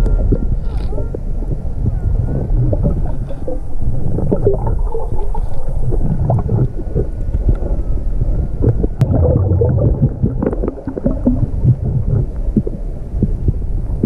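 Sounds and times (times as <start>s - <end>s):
water gurgling: 0.0s - 14.0s
underwater water surge rumble: 1.2s - 14.0s
crackles and knocks: 2.4s - 7.8s, 8.6s - 13.7s.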